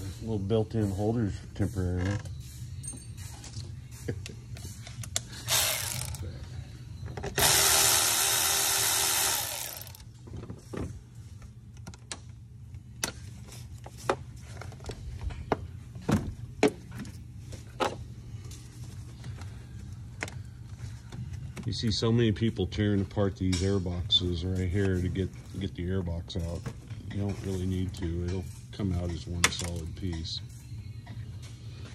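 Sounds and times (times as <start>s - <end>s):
hand tools clicking and knocking: 5.0s - 6.2s
cordless power ratchet running: 5.4s - 6.2s, 7.4s - 10.0s.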